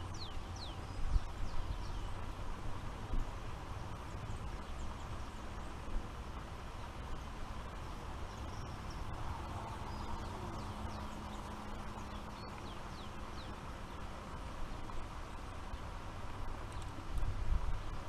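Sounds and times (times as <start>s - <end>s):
low rumble and hiss: 0.0s - 18.0s.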